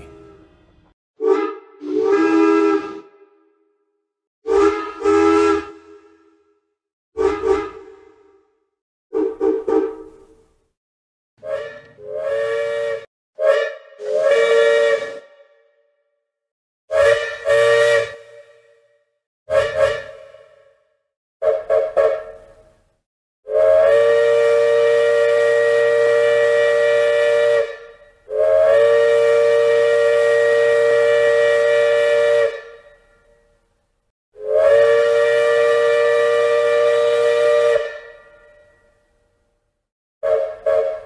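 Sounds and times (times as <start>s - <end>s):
steam train chime whistle: 11.4s - 15.3s, 16.9s - 18.6s, 21.4s - 22.4s, 23.5s - 33.3s, 34.4s - 39.1s, 40.2s - 41.0s.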